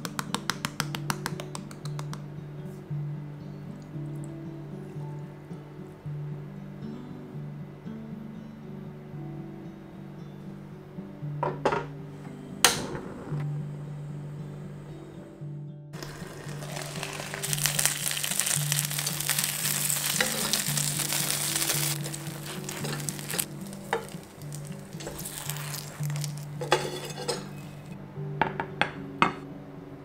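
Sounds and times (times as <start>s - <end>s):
dumplings sizzling in a frying pan: 16.0s - 27.9s.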